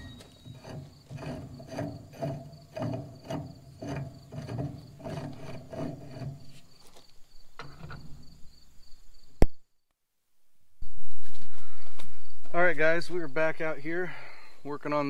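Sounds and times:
tap scraping squeak on metal: 0.0 - 8.3.

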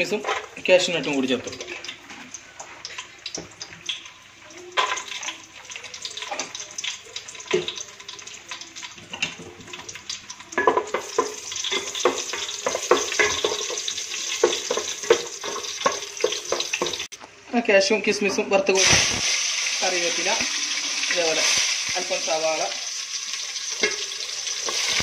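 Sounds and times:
nuts sizzling in hot fat: 0.0 - 17.1, 18.7 - 25.0
spatula scraping and knocking a pot: 10.6 - 17.0.

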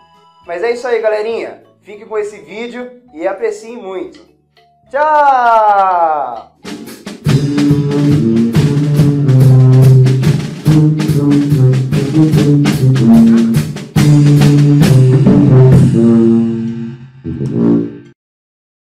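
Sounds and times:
drum kit beat with cymbals: 6.0 - 17.9
sousaphone bass line: 7.3 - 18.1.

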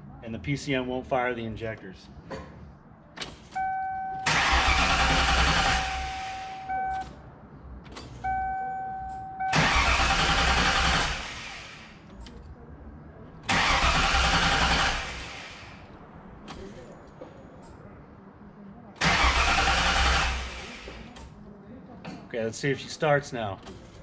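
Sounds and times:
starter cranking engine: 4.2 - 6.7, 9.5 - 12.0, 13.5 - 15.8, 19.0 - 21.2.

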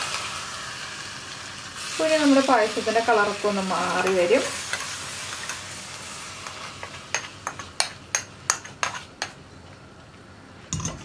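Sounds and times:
spoon clinking on metal pot: 10.8 - 11.0.

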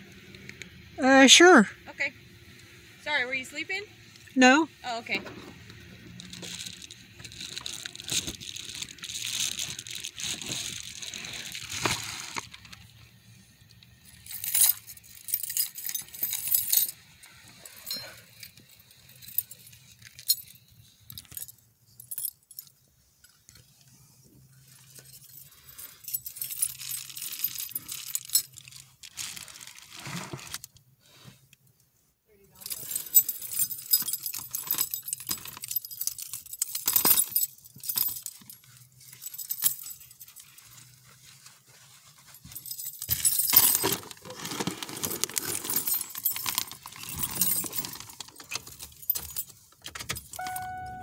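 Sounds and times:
rustling: 6.1 - 12.9, 14.2 - 49.8
metallic jingling and clinking: 13.9 - 23.4, 24.5 - 28.8, 32.6 - 51.0.

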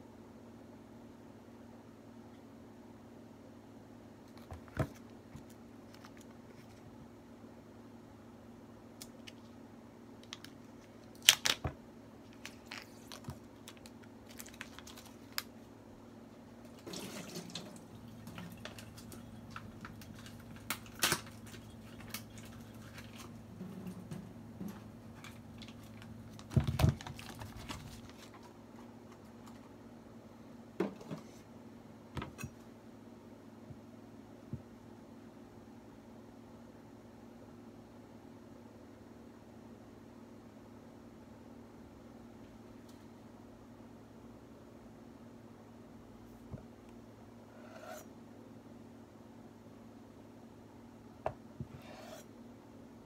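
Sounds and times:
plastic film crinkling and clicking: 10.2 - 11.7, 12.3 - 15.6, 18.3 - 23.4, 25.2 - 28.5.

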